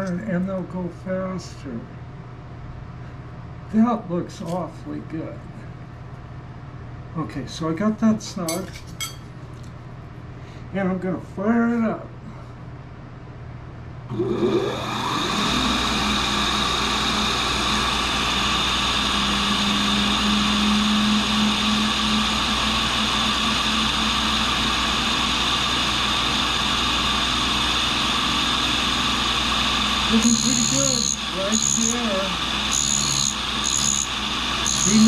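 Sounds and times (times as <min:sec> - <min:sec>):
grinder motor whining: 0:14.1 - 0:35.0.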